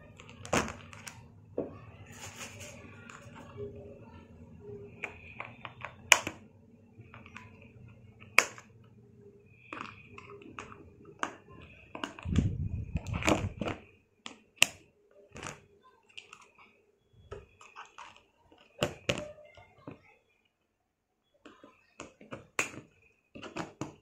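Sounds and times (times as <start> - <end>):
cardboard rustling and scraping: 2.1 - 3.5.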